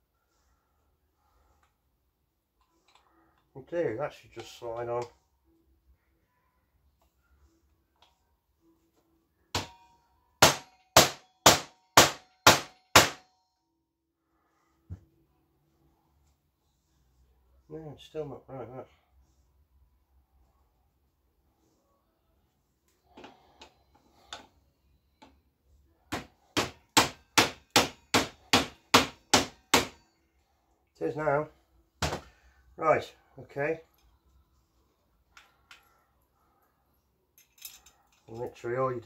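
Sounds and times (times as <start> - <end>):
hammer striking metal: 9.5 - 13.3, 26.1 - 30.1.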